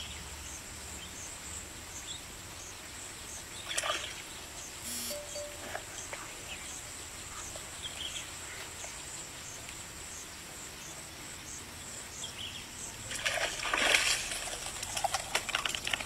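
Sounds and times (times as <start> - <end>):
loud splash and thrashing: 13.1 - 16.0.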